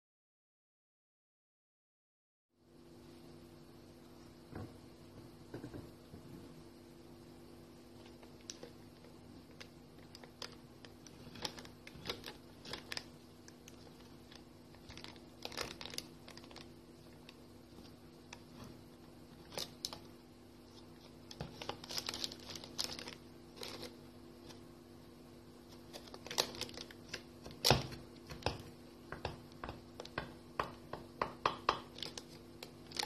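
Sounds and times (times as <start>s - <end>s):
baking paper crinkling: 8.0s - 24.7s, 25.6s - 28.8s, 31.9s - 33.0s.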